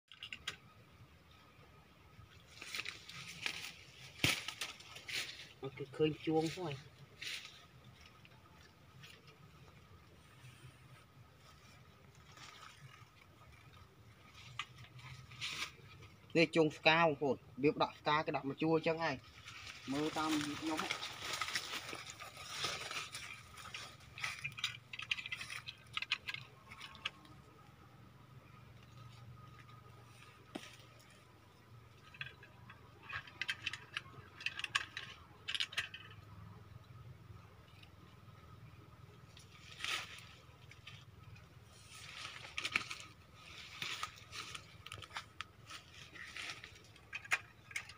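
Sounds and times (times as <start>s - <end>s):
rustling of leaves and twigs: 0.1s - 47.9s
wire snares clinking on wood: 19.9s - 27.5s.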